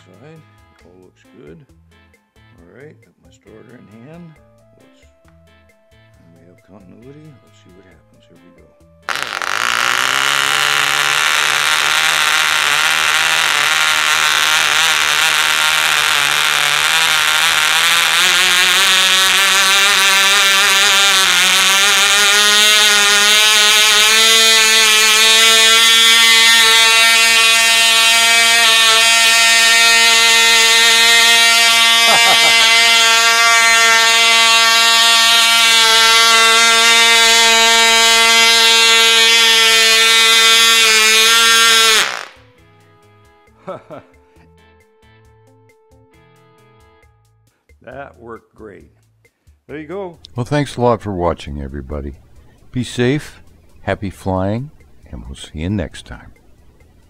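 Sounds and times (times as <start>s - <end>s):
model engine high-pitched whine: 9.1s - 42.4s.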